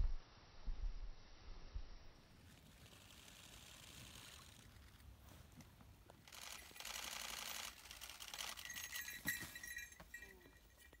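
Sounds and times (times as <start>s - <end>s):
camera shutters clicking: 6.2s - 8.7s.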